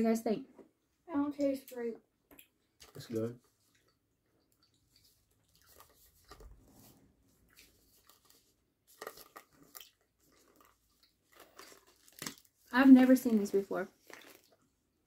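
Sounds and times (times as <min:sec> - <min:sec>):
people chewing: 0:01.7 - 0:12.6, 0:14.0 - 0:14.7
sweet wrapper rustling: 0:04.9 - 0:14.7.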